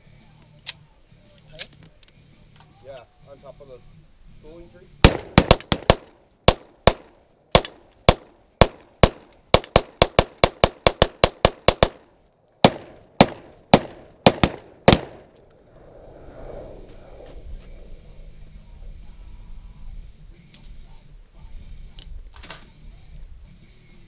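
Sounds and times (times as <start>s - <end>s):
gunshots: 5.0s - 12.0s, 12.6s - 15.3s.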